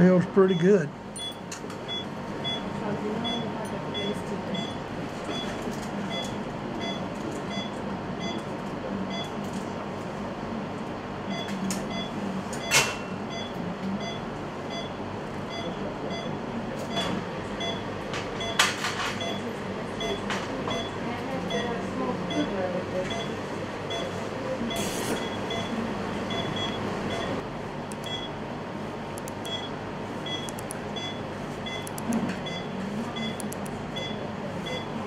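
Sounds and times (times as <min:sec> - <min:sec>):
short beeps: 0:00.5 - 0:02.6, 0:28.0 - 0:28.3, 0:29.4 - 0:34.9
sharp instrument clicks: 0:27.9 - 0:28.2, 0:29.2 - 0:29.6, 0:30.5 - 0:30.8, 0:31.8 - 0:32.2.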